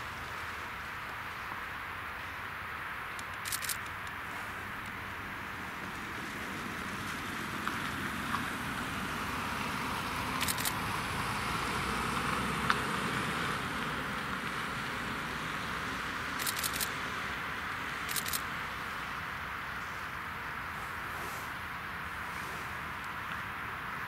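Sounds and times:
distant jet engine whine: 0:00.0 - 0:24.0
short clicks: 0:03.2 - 0:04.2, 0:10.4 - 0:10.8, 0:16.4 - 0:16.9, 0:18.1 - 0:18.4.

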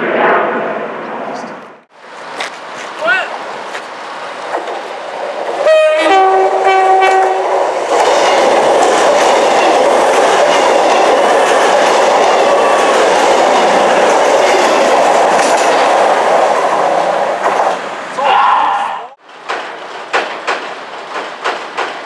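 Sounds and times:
train passing at speed: 0:00.0 - 0:18.6, 0:19.2 - 0:22.0
train horn: 0:05.6 - 0:07.5.

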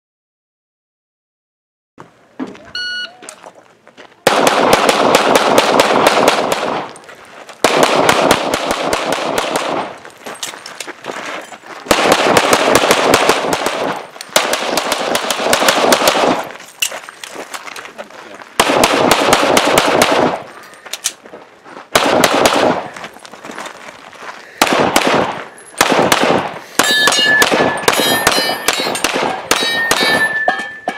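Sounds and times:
electronic timer beep: 0:02.8 - 0:03.2, 0:26.8 - 0:28.9
rapid pistol fire: 0:04.3 - 0:06.9, 0:07.6 - 0:09.9, 0:11.9 - 0:16.4, 0:18.6 - 0:20.4, 0:21.9 - 0:22.9, 0:24.6 - 0:30.2.

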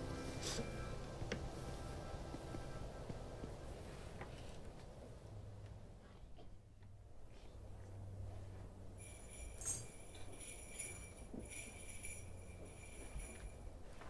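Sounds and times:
high-pitched ringing: 0:00.0 - 0:03.2, 0:09.0 - 0:13.7.

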